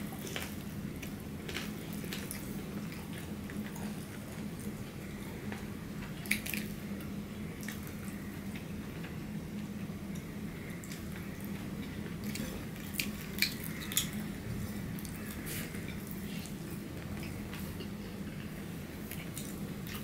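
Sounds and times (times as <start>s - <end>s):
steady low hum: 0.0s - 20.0s
wet chewing and mouth smacks: 12.2s - 14.2s.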